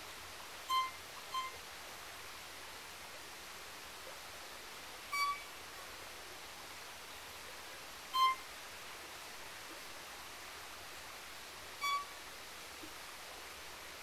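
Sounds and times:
faint hiss: 0.0 - 14.0
violin playing short high notes: 0.7 - 1.5, 5.2 - 5.4, 8.2 - 8.4, 11.8 - 12.1.

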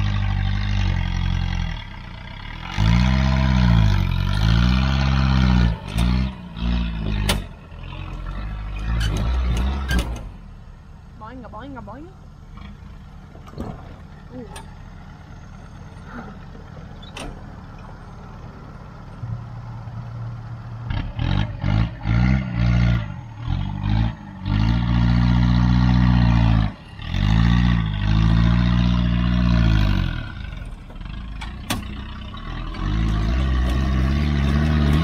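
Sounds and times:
turbocharged engine revving: 2.5 - 10.3, 20.8 - 35.0.

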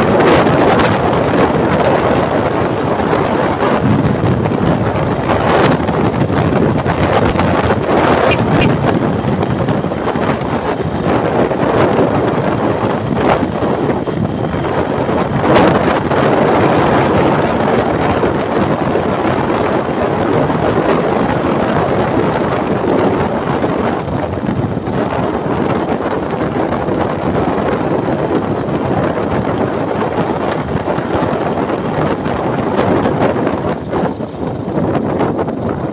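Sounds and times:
motorcycle and road noise: 0.0 - 35.9
wind rushing over microphone: 0.0 - 35.9.

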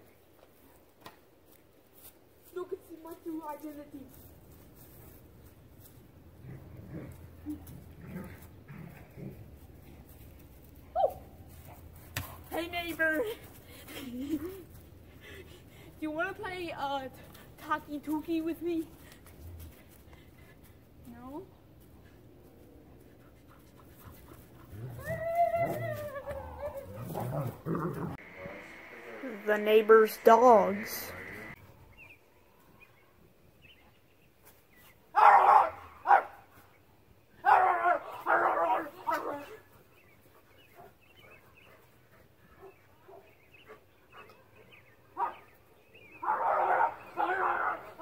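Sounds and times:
large dog barking: 35.2 - 36.4, 37.4 - 39.5, 45.2 - 45.5, 46.2 - 48.0.

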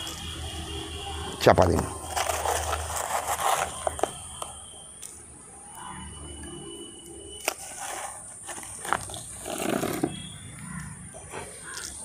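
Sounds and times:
sand scraping by hand: 7.6 - 10.2.

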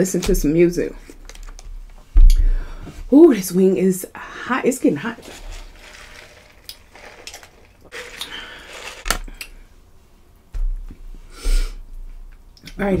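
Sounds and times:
clicks and rustles of handling food: 1.1 - 2.0, 5.2 - 9.4
sipping through a straw: 5.2 - 9.2.

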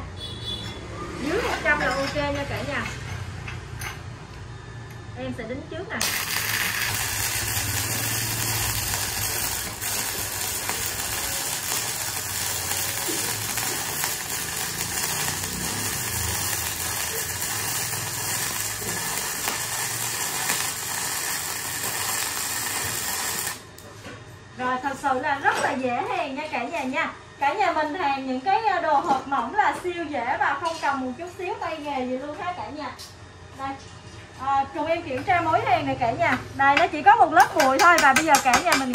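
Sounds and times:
welding arc buzzing: 6.0 - 23.9.

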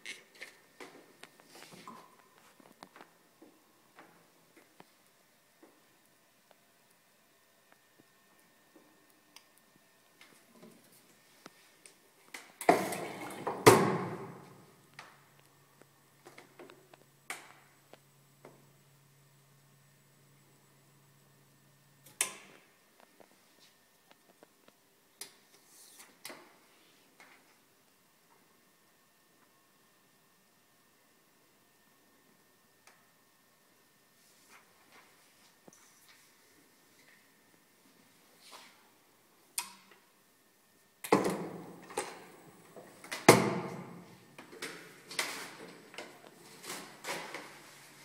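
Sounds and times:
low steady hum: 0.0 - 25.6.

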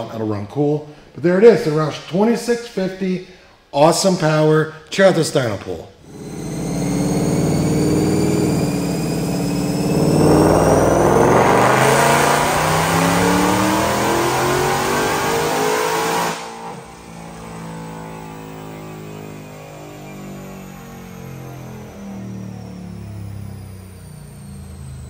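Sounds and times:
car engine revving on dyno: 6.0 - 25.0
supercharger whine: 6.0 - 25.0.

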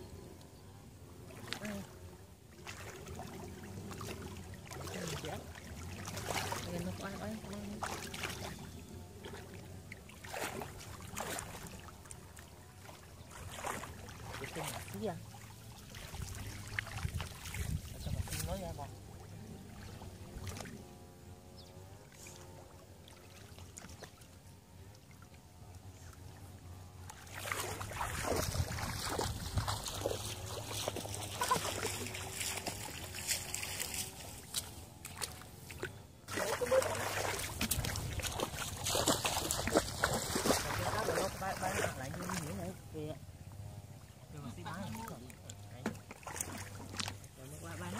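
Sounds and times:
hands splashing in muddy water: 2.6 - 8.6, 10.1 - 12.2, 27.0 - 42.6, 45.9 - 47.3.

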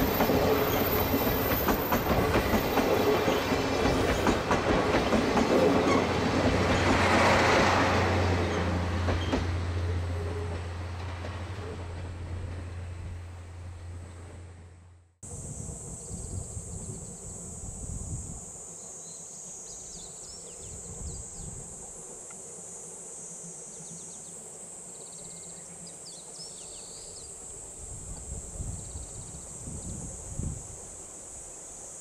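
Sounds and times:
insect chirps and trills: 0.0 - 6.9, 15.2 - 32.0
insects droning: 0.0 - 14.3, 15.2 - 32.0.

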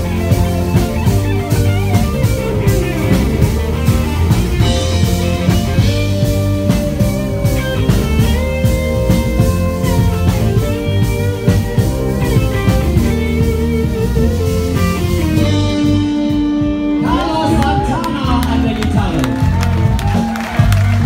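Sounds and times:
live rock band playing: 0.0 - 21.0
person singing: 17.0 - 19.3.

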